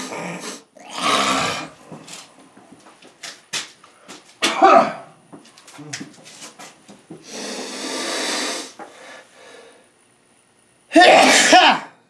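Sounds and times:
man sneezing: 0:04.4 - 0:05.1, 0:10.9 - 0:12.0
noisy rush of breath: 0:07.2 - 0:10.0.

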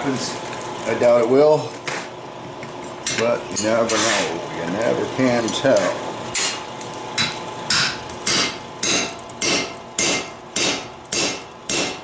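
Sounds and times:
hammer striking steel punch: 0:07.2 - 0:12.0.

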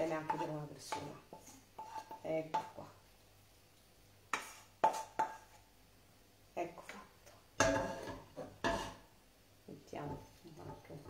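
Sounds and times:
utensil scraping frying pan: 0:00.0 - 0:02.8, 0:04.3 - 0:05.7, 0:07.6 - 0:09.1.

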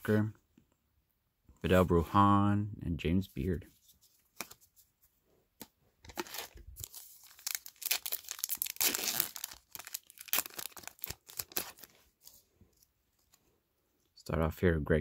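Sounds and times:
foil wrapper tearing and crinkling: 0:06.1 - 0:12.1.

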